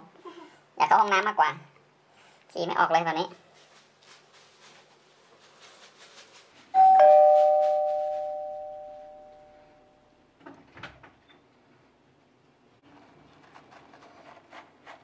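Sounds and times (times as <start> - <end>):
two-tone ding-dong chime: 6.8 - 9.6.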